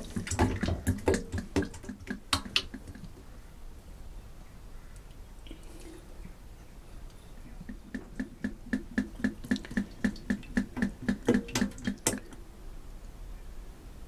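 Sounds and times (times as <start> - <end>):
oil glugging from metal tin: 7.7 - 12.4.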